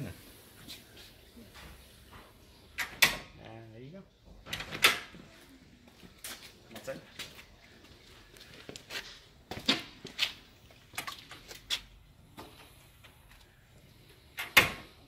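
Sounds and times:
screen door hardware clicking: 2.8 - 3.3.

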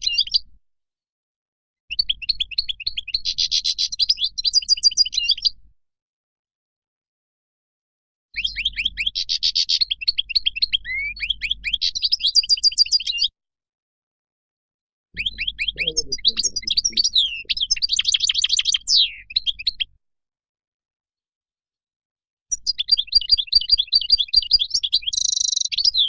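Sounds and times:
goldfinch twittering song: 15.2 - 19.9, 22.5 - 26.0.

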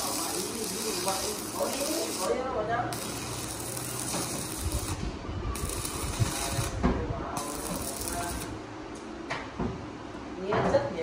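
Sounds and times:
crackling hiss bursts: 0.0 - 5.0.

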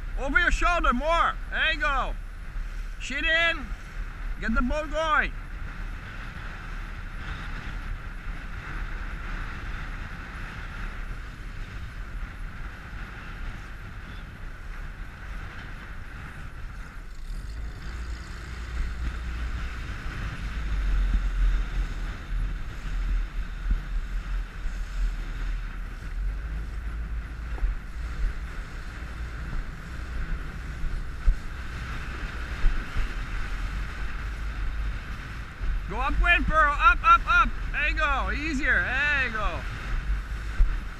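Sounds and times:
wind buffeting microphone: 0.0 - 40.9.

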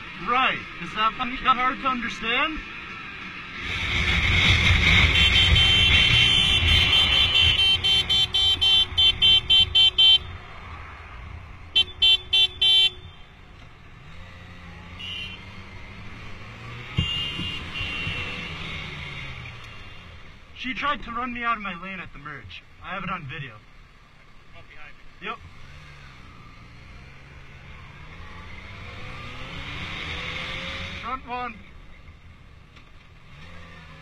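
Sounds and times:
motorcycle engine running: 3.7 - 9.9
vehicle horn honking: 5.0 - 10.3, 11.7 - 13.3, 14.9 - 15.6, 16.9 - 18.5.

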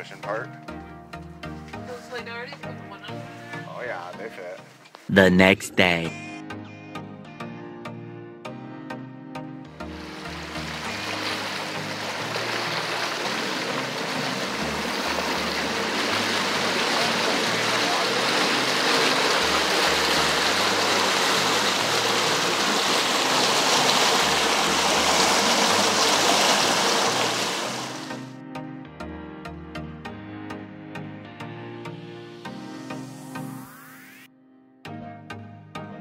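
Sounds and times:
background music bass line: 5.1 - 26.3
boat wake water churning: 9.8 - 28.3.

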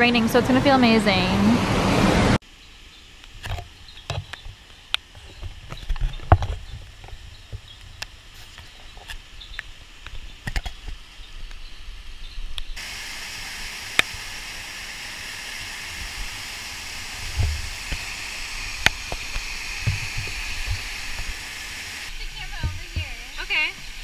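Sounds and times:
rain taps: 12.6 - 24.0
waterfall rushing: 12.8 - 24.0.

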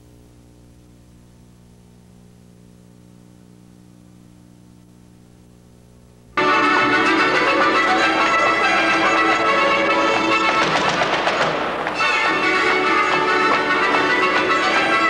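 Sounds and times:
low electrical hum: 0.0 - 15.0
loud music: 6.4 - 15.0.

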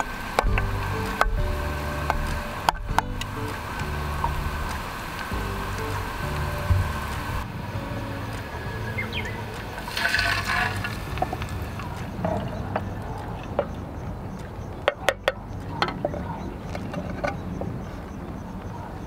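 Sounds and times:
oil crackling and popping: 0.0 - 7.4, 9.5 - 16.1
water hissing in hot oil: 0.0 - 7.5, 8.1 - 12.0
water pouring: 0.0 - 13.8.

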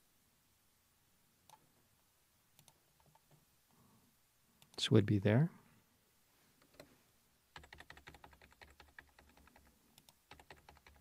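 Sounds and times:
faint computer keyboard typing: 2.6 - 3.4, 6.6 - 6.9, 7.5 - 11.0.

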